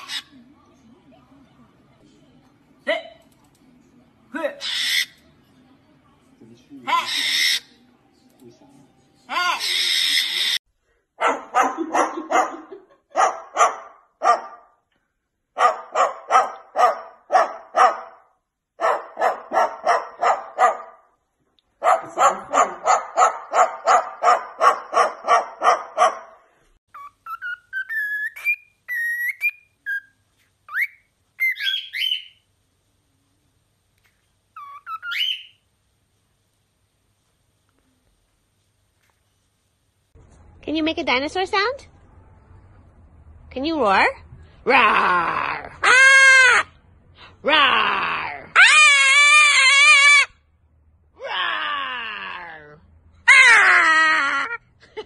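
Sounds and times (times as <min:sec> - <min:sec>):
dog barking: 0:11.2 - 0:14.8, 0:15.6 - 0:21.1, 0:21.8 - 0:26.4
pet bird whistling: 0:26.9 - 0:32.4, 0:34.6 - 0:35.6.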